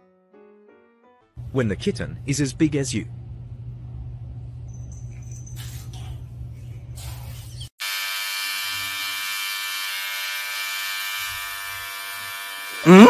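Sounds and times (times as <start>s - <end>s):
electric trimmer buzzing: 7.8s - 13.0s.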